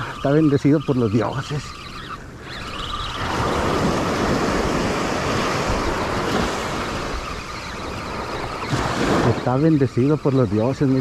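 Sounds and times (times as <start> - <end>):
waves breaking on beach: 0.0 - 11.0.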